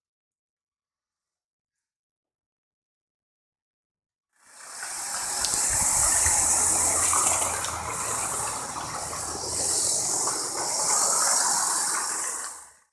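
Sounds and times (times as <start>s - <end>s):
toy train motor whirring: 4.4s - 12.8s.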